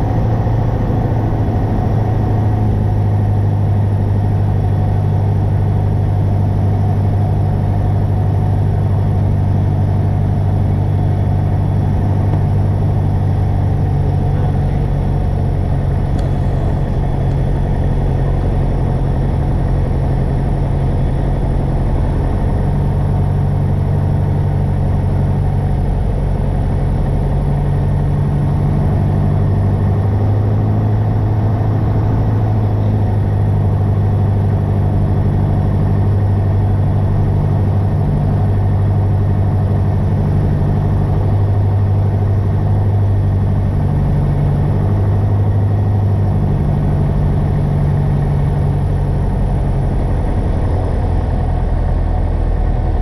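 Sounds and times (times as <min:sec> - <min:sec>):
aircraft engine droning: 0:00.0 - 0:53.0.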